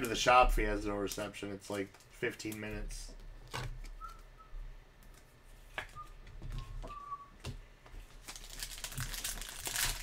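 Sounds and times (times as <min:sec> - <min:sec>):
soft whistling: 0:04.0 - 0:04.6, 0:05.9 - 0:07.4.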